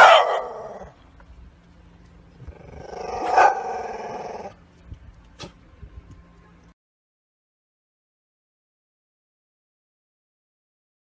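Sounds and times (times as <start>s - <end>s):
dog barking: 0.0s - 0.8s, 3.2s - 3.8s
dog growling: 2.4s - 4.6s.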